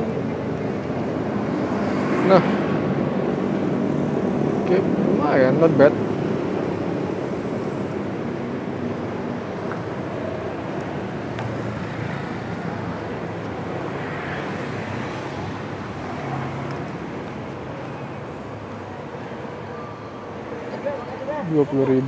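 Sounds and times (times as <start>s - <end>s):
road traffic passing: 0.0s - 22.0s.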